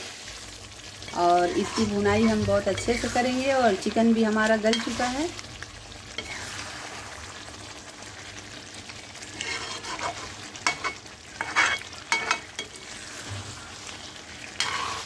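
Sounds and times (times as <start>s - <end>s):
chicken sizzling in oil: 0.0s - 15.0s
metal spatula scraping pan: 1.1s - 3.4s, 6.2s - 6.6s, 9.3s - 15.0s.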